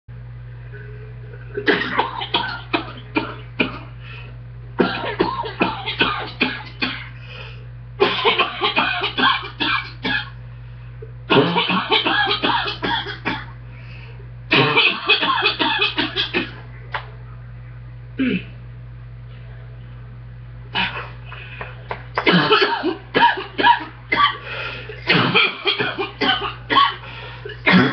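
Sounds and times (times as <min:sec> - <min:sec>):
steady low hum: 0:00.1 - 0:27.9
person coughing harshly: 0:01.5 - 0:04.0, 0:04.8 - 0:07.2, 0:08.0 - 0:10.4, 0:11.3 - 0:13.5, 0:14.5 - 0:16.6, 0:18.2 - 0:18.5, 0:22.2 - 0:27.9.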